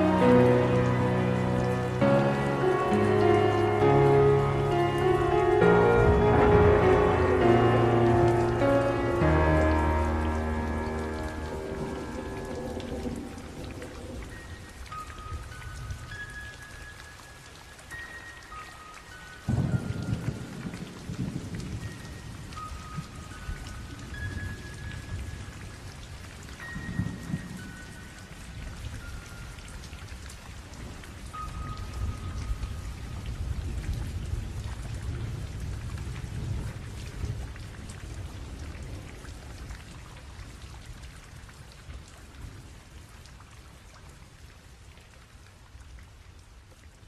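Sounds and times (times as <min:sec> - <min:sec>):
faint high held notes: 0:00.0 - 0:15.6
steady rain: 0:00.0 - 0:47.0
low rolling thunder: 0:05.2 - 0:14.8, 0:19.5 - 0:23.1.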